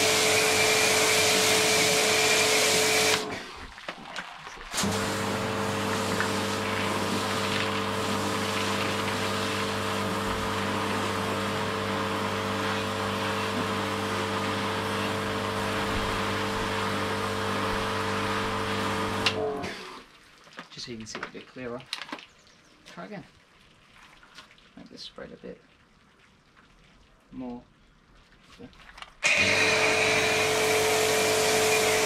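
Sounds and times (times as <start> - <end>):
pressure washer motor hum: 0.0 - 3.6, 4.7 - 20.0, 29.2 - 32.0
water jet hissing: 0.0 - 20.1.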